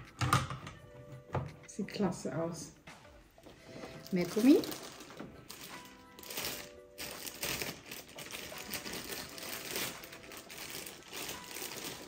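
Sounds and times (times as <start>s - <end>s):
plastic bag crinkling: 3.9s - 12.0s.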